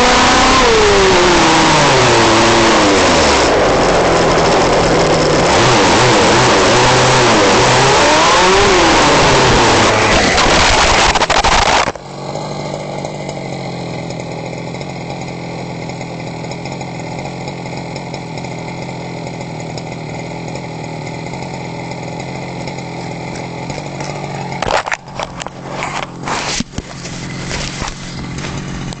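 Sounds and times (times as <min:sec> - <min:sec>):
small two-stroke engine running: 0:00.0 - 0:29.0
rustling bursts: 0:09.9 - 0:12.0, 0:24.6 - 0:29.0.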